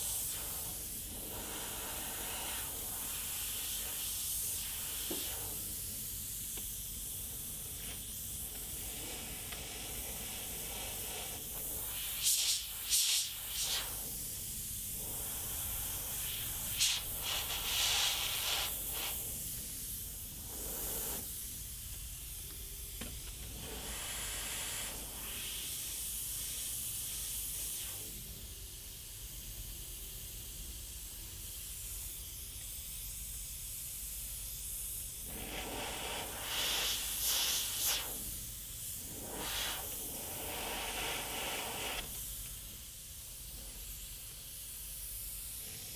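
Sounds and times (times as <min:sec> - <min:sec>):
airbrush hissing: 0:00.0 - 0:45.9.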